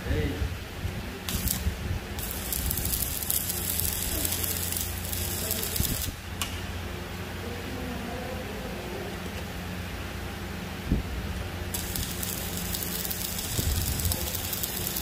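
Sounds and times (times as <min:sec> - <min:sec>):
arc welding crackling hiss: 0:01.1 - 0:06.4, 0:11.6 - 0:15.0.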